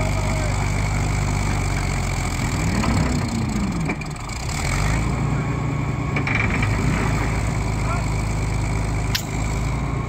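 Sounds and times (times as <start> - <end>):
tractor engine under load: 0.0 - 10.0.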